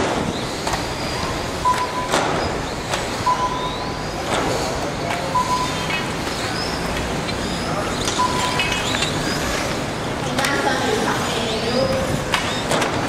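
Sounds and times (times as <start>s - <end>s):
short high beeps: 1.6s - 2.2s, 3.2s - 4.0s, 5.3s - 5.9s, 8.1s - 8.8s.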